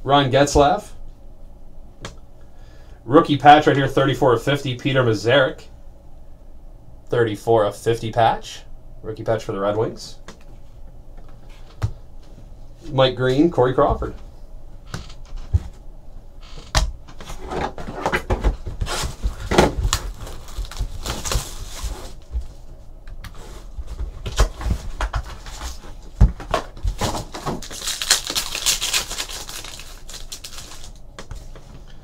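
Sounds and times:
foil pack crinkling and tearing: 18.9 - 22.3, 26.5 - 31.5.

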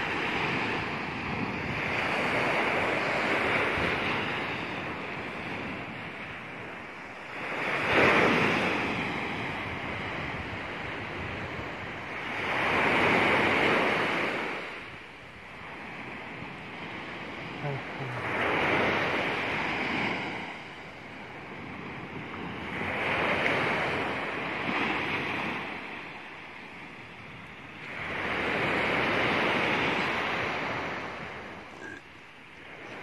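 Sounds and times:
surf breaking on beach: 16.1 - 31.7.

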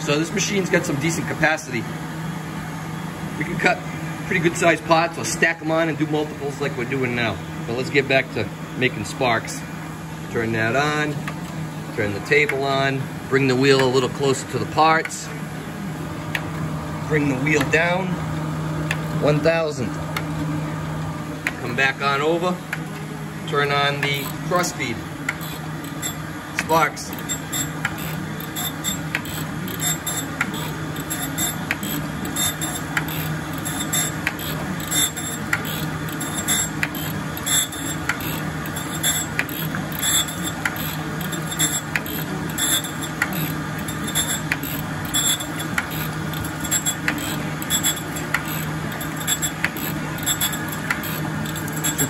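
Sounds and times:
grinder machine hum: 20.7 - 52.0
grinding wheel hiss: 24.0 - 52.0.

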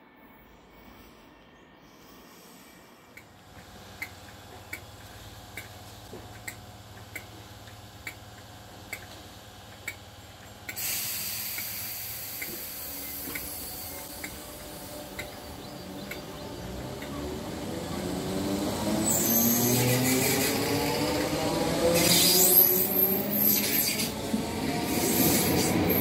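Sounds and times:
electric train humming: 0.0 - 26.0
compressed air hissing: 10.7 - 15.2.

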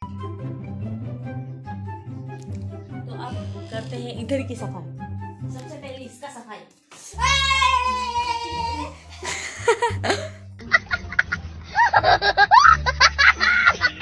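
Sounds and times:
music with low bass: 8.6 - 14.0.

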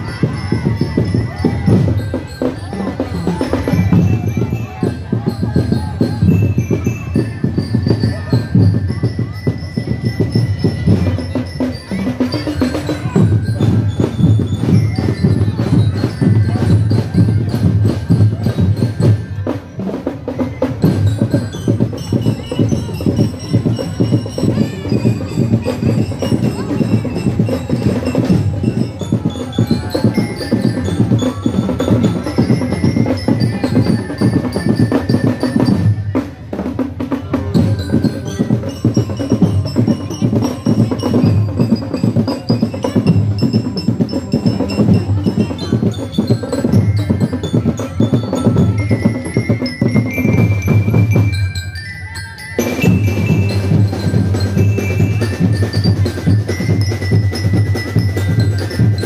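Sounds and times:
fast drum and percussion beat: 0.0 - 59.0
high-pitched melody: 37.6 - 59.0.

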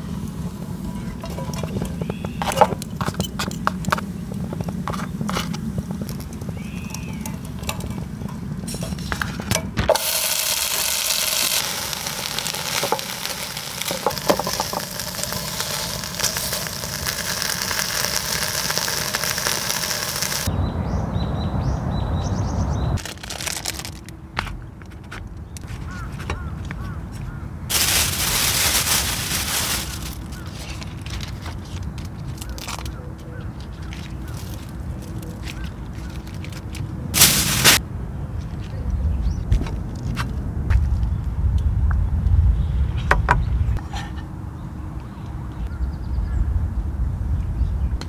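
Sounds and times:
plastic bag crackling: 9.8 - 20.5, 23.0 - 24.2, 27.7 - 32.9, 33.5 - 37.8.

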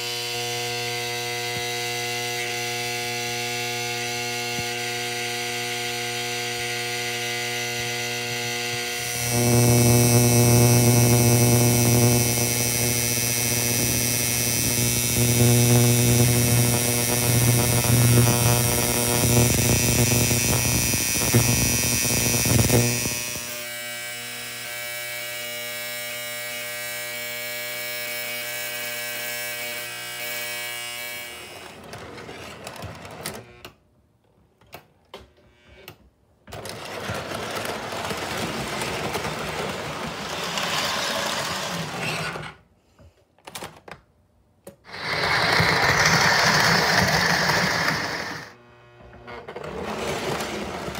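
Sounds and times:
electric buzzing of vibrating platform: 0.0 - 31.6.

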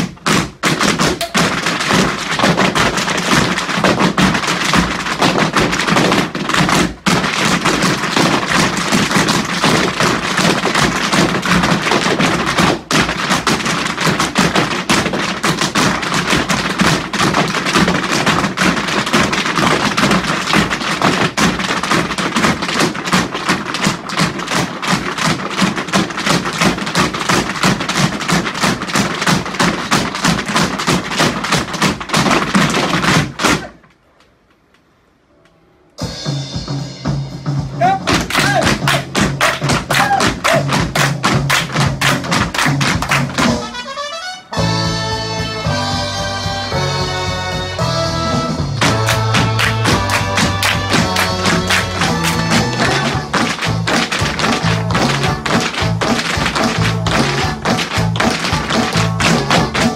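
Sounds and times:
tap shoes striking wooden floor: 0.0 - 33.8, 38.1 - 43.7.

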